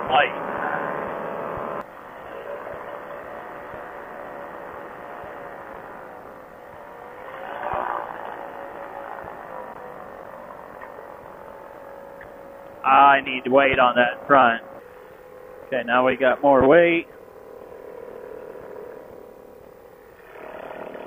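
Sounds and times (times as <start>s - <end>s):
ultralight aircraft engine running: 0.0s - 21.0s.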